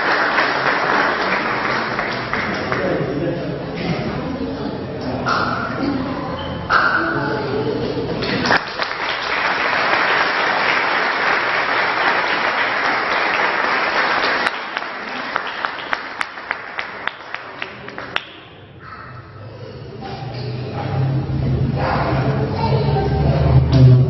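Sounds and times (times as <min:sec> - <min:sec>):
audience applause: 0:00.0 - 0:03.2, 0:08.2 - 0:18.3.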